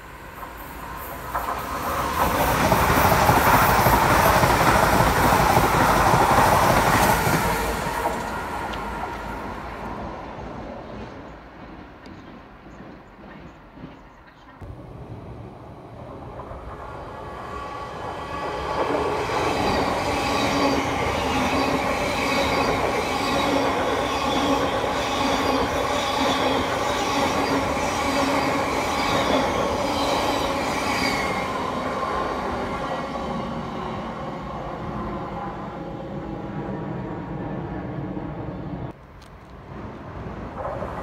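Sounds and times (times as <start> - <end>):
steady train tones: 0.0 - 41.0
train passing at speed: 0.0 - 41.0
wheels rushing on rail: 0.0 - 41.0.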